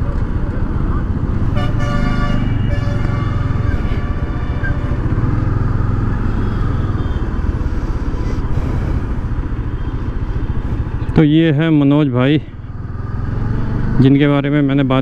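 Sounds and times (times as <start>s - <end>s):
motorcycle engine running: 0.0s - 15.0s
vehicle horn: 1.5s - 5.2s, 6.3s - 7.4s.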